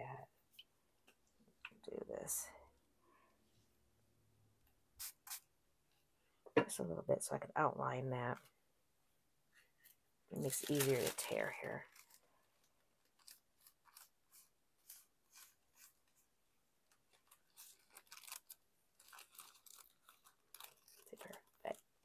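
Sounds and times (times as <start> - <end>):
tissue paper tearing: 10.4 - 16.2, 17.0 - 21.8.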